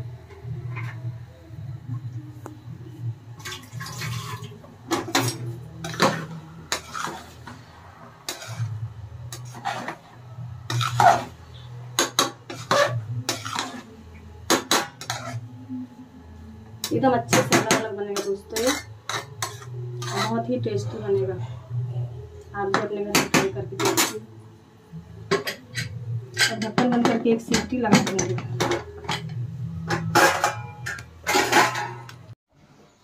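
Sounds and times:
metal spatula scraping pot: 3.9 - 15.5, 16.9 - 20.8, 25.3 - 32.2.

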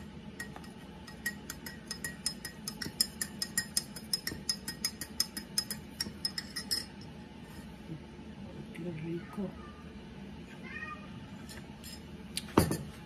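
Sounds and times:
spoon clinking glass mug: 0.4 - 7.1.

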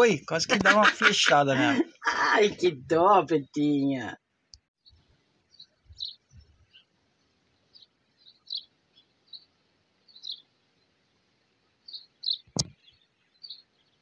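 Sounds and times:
small birds chirping: 4.6 - 14.0
background hiss: 5.0 - 14.0.

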